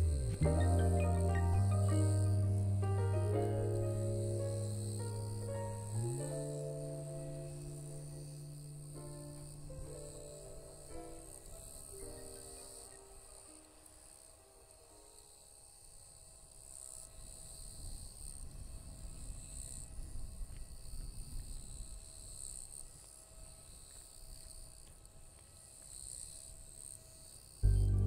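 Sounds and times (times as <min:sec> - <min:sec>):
low rumble: 0:00.0 - 0:10.9, 0:27.6 - 0:28.0
insects chorus: 0:00.0 - 0:28.0.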